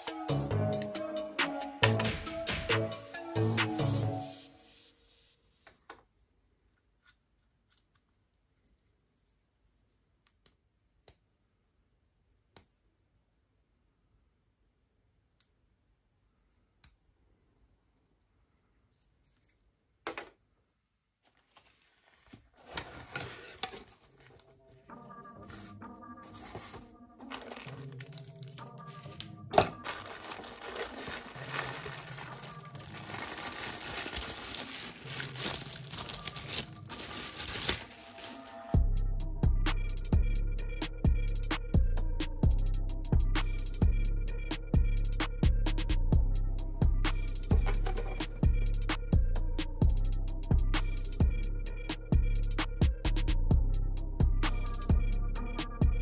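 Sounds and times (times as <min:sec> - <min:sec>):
quiet background music: 0:00.0 - 0:05.5, 0:21.5 - 0:56.0
plastic bag crinkling: 0:26.3 - 0:38.7.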